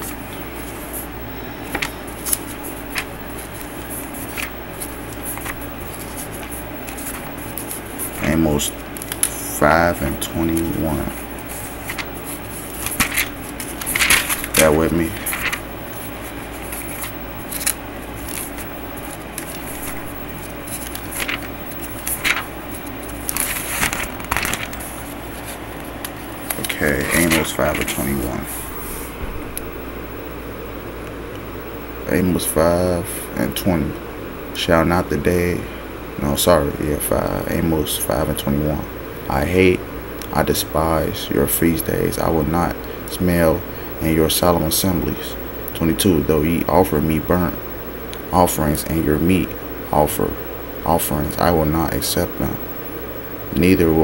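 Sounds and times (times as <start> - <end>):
pages being turned: 0.0 - 29.7
low steady hum: 0.0 - 54.0.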